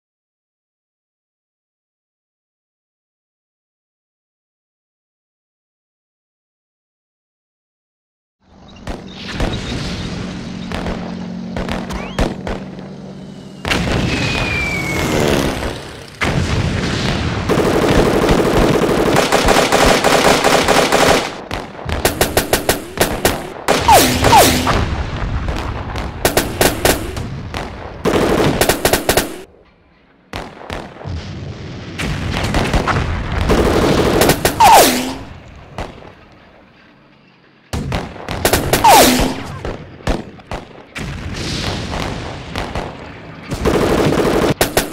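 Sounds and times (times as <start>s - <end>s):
explosions: 8.8s - 36.8s, 37.7s - 44.9s
machine-gun and rifle fire: 8.9s - 29.5s, 32.0s - 36.2s, 37.8s - 44.9s.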